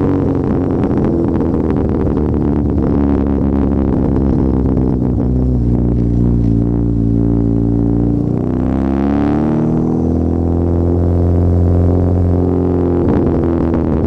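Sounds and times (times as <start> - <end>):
loud car exhaust revving: 0.0 - 14.0.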